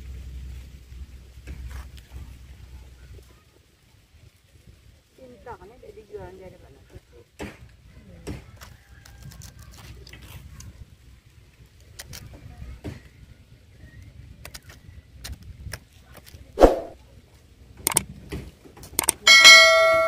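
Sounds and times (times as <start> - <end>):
faint clicks: 17.8 - 18.1, 18.8 - 19.2
bright bell ding: 19.2 - 20.0.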